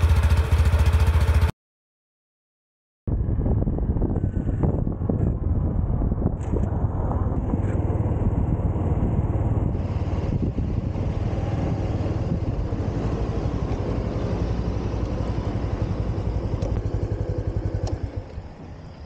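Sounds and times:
scooter engine running slowly: 0:00.0 - 0:01.5, 0:07.5 - 0:19.0.

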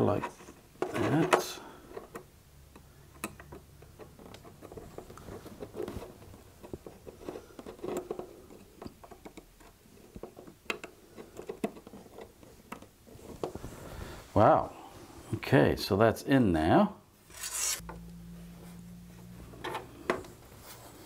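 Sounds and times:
metal scraping on circuit board: 0:17.3 - 0:17.9.

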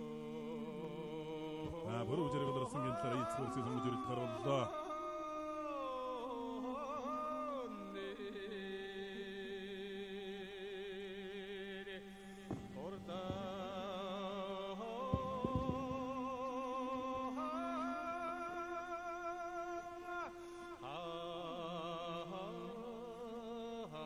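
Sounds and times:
bowed fiddle drone: 0:00.0 - 0:04.8, 0:11.7 - 0:23.2
person singing long held notes: 0:00.0 - 0:24.0
short knocks: 0:15.2 - 0:16.2.

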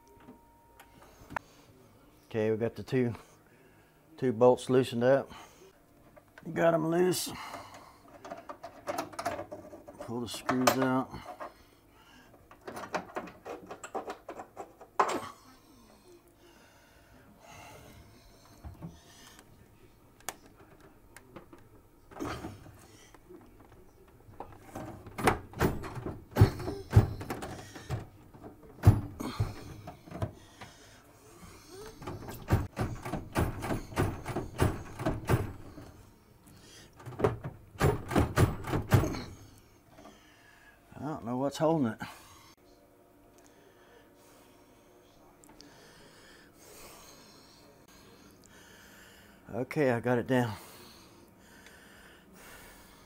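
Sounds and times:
hands clicking and tapping on microwave: 0:24.4 - 0:30.7, 0:31.9 - 0:35.9, 0:37.0 - 0:39.3.

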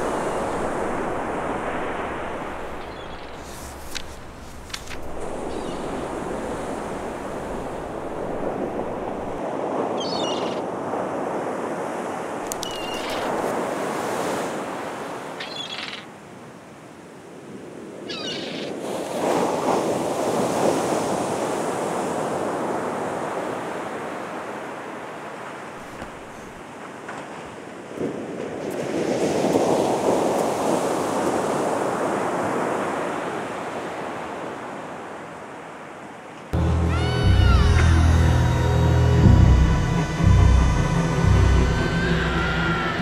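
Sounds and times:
ocean waves rushing: 0:00.0 - 0:15.6, 0:17.4 - 0:35.9, 0:36.5 - 0:43.0
short bird calls: 0:05.4 - 0:06.0, 0:10.0 - 0:10.6, 0:12.6 - 0:13.4, 0:15.4 - 0:16.1, 0:18.1 - 0:18.8.

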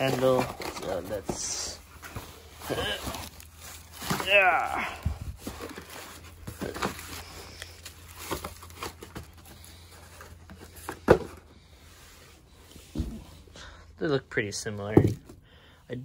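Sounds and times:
cardboard box rustling: 0:00.0 - 0:12.2.

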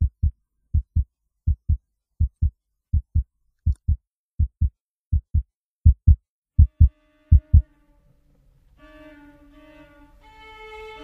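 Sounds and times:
heartbeat thumps: 0:00.0 - 0:07.6.

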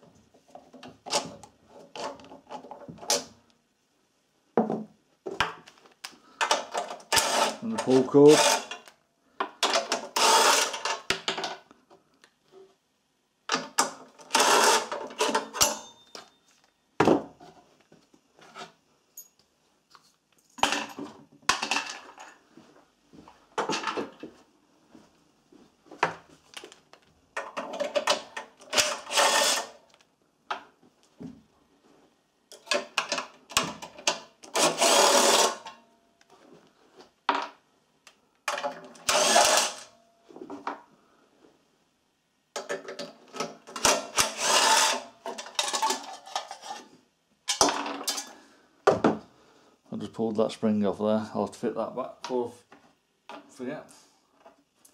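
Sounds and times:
cordless drill running: 0:10.2 - 0:10.8, 0:28.8 - 0:29.7, 0:34.6 - 0:35.6, 0:39.1 - 0:39.8.

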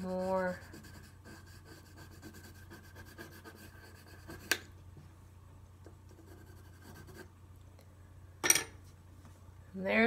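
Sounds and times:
pencil scratching on paper: 0:00.0 - 0:04.7, 0:06.1 - 0:07.3.

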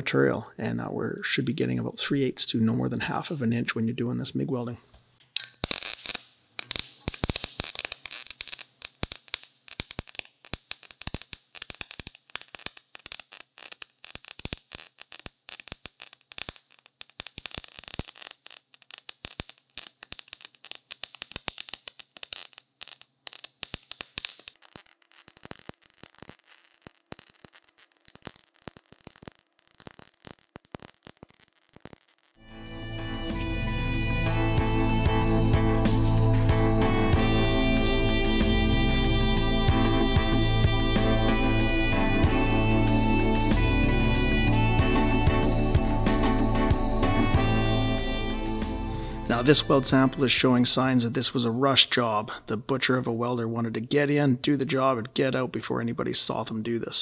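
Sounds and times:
welding arc crackling and popping: 0:05.4 - 0:50.4.

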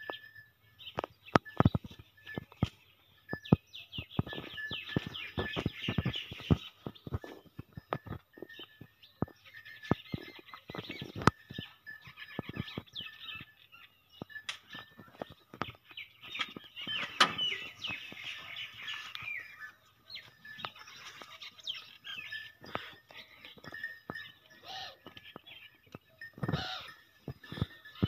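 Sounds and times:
small birds chirping: 0:00.0 - 0:28.0
sharp clicks and knocks: 0:14.2 - 0:18.0.

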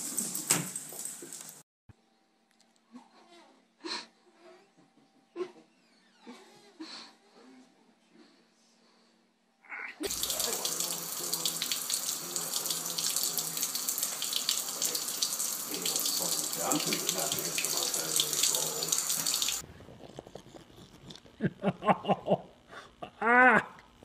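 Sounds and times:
faucet water splashing into sink: 0:10.0 - 0:19.6.

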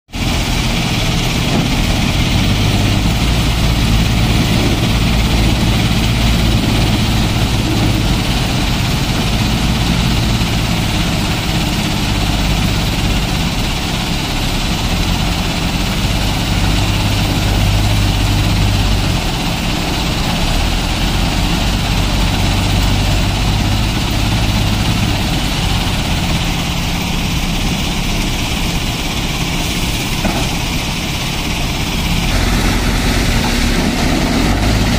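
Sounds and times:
diesel engine under load: 0:00.1 - 0:34.9.

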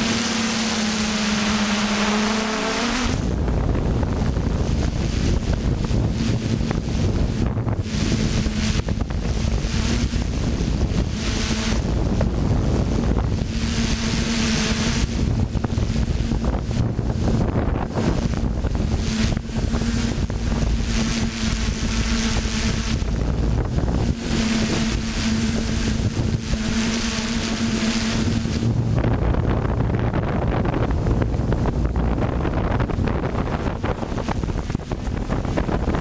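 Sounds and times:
drone motors humming: 0:00.0 - 0:36.0
wind noise on microphone: 0:00.0 - 0:36.0.

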